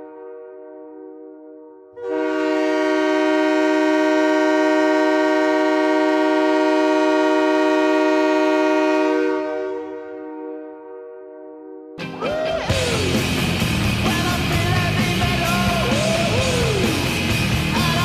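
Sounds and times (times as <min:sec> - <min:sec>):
air horn chord blast: 0:00.0 - 0:13.5.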